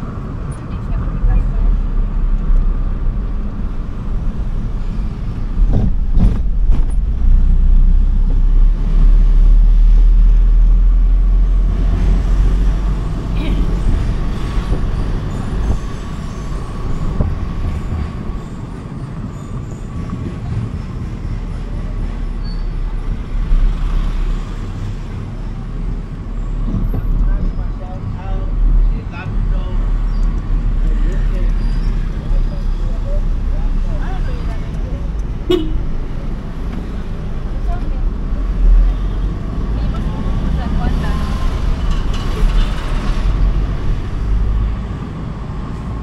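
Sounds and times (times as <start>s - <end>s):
vehicle engine and road noise: 0.0s - 46.0s.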